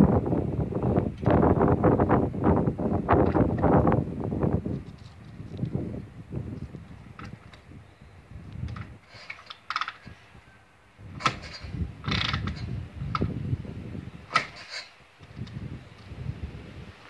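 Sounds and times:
motorcycle engine turning over: 11.1s - 13.4s
kickstarter ratchet clattering: 11.2s - 13.3s.

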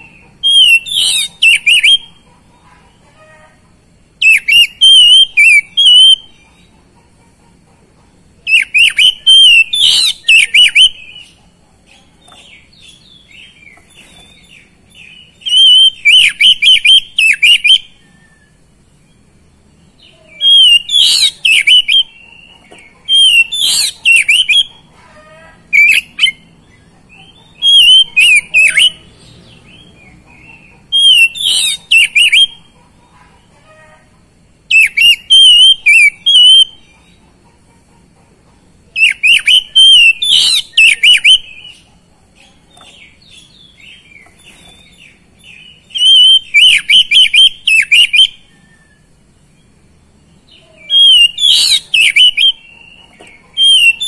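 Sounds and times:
bird singing whistles and chirps: 0.0s - 2.2s, 4.2s - 6.4s, 8.5s - 11.4s, 12.6s - 19.2s, 20.3s - 22.2s, 23.0s - 24.7s, 25.8s - 26.5s, 27.5s - 29.1s, 30.6s - 32.6s, 34.7s - 36.9s, 39.0s - 41.8s, 43.4s - 49.1s, 50.8s - 53.0s, 53.6s - 54.0s.

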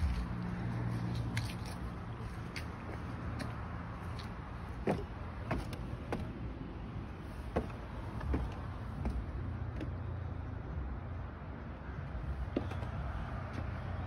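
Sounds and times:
footsteps on wooden stairs: 2.2s - 6.4s, 7.3s - 10.0s, 12.4s - 13.7s.

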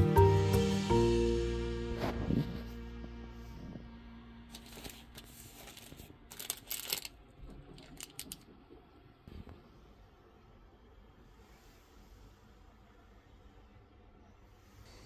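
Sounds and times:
plastic packet crinkling: 4.5s - 8.5s.

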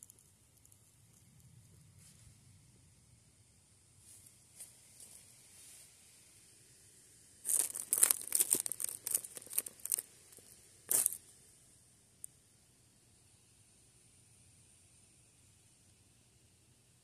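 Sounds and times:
dry leaves rustling: 7.4s - 11.2s.

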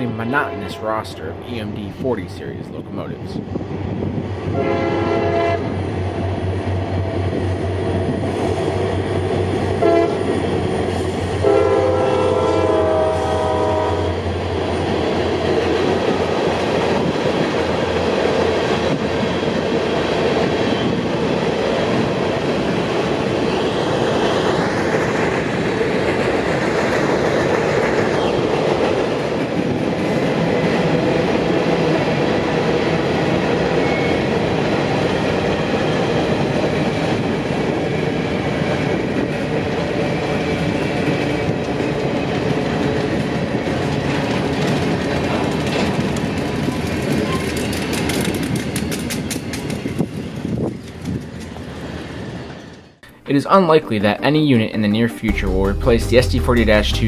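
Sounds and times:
train horn blasts: 4.5s - 5.8s, 9.8s - 10.3s, 11.4s - 14.2s
freight cars rolling clatter: 43.8s - 51.8s.

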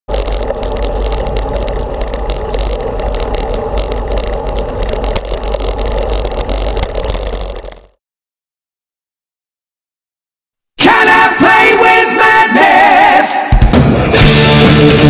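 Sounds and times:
road rumble: 0.0s - 8.0s
wind buffeting: 0.1s - 7.8s
knocks and rattles from road: 0.1s - 8.0s.

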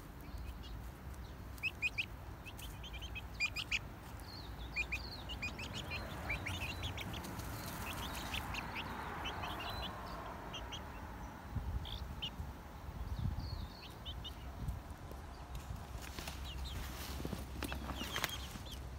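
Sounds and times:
leaves rustling: 0.0s - 9.8s, 13.9s - 18.9s
chicks peeping: 0.0s - 18.9s.

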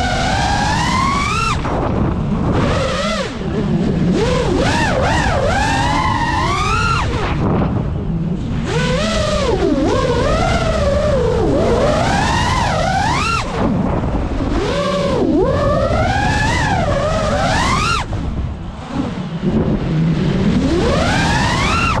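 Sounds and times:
drone motors whining: 0.0s - 22.0s
wind rumbling on camera: 0.0s - 22.0s.

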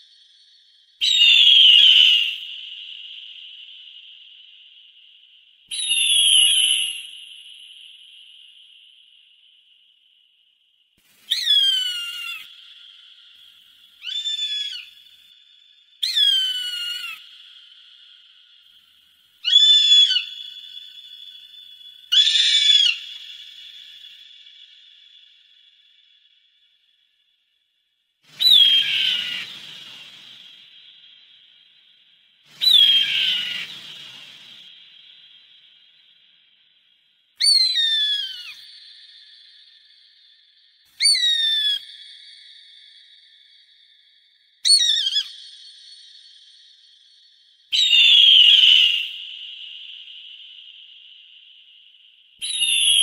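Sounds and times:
bird of prey whistled calls: 0.0s - 4.6s, 5.7s - 8.5s, 11.2s - 18.7s, 19.4s - 25.6s, 28.3s - 31.5s, 32.5s - 36.0s, 37.4s - 43.6s, 44.6s - 51.5s, 52.4s - 53.0s
faint steady whistle-like tone: 0.0s - 53.0s.

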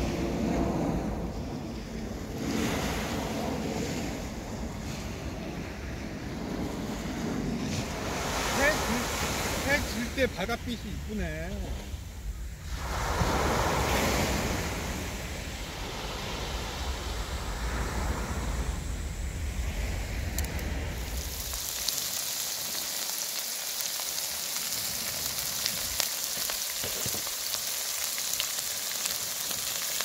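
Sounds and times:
waves washing on beach: 0.0s - 30.0s
meat sizzling on griddle: 21.0s - 30.0s.

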